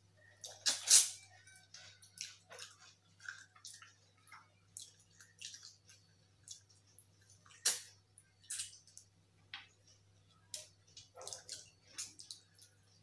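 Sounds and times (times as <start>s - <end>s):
wet chewing and lip smacks: 11.0s - 12.7s.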